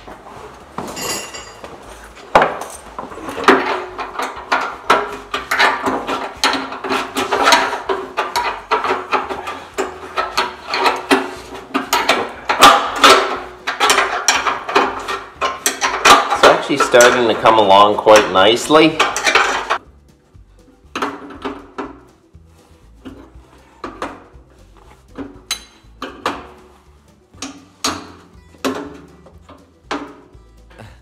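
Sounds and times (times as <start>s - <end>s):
wrench clicking and scraping: 1.2s - 19.8s, 23.0s - 26.7s.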